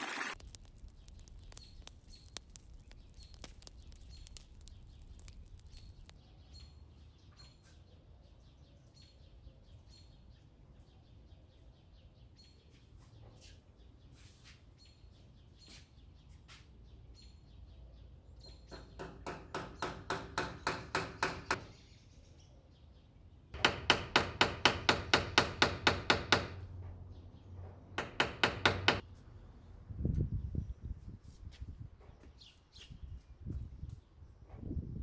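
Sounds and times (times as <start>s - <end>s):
hammer driving a nail: 18.7s - 21.6s, 23.6s - 26.6s, 28.0s - 29.0s.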